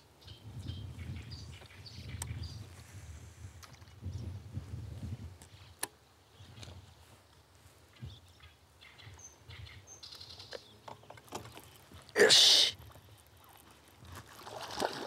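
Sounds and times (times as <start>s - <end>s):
wind rumble on microphone: 0.2s - 5.8s.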